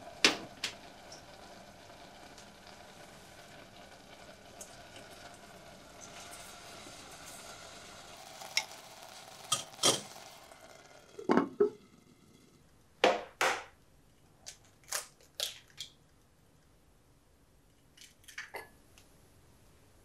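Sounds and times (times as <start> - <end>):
faint steady hiss: 0.0 - 20.0
ceramic lid clunking on pot: 11.2 - 11.8
eggs cracking: 14.4 - 16.1.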